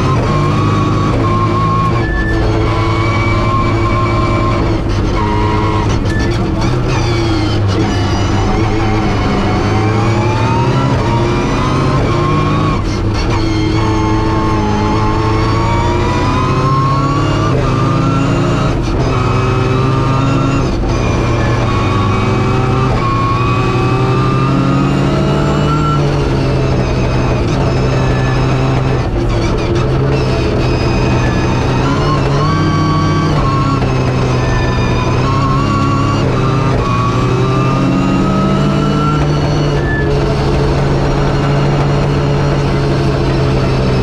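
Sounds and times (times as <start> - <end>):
rally car engine revving: 0.0 - 44.0.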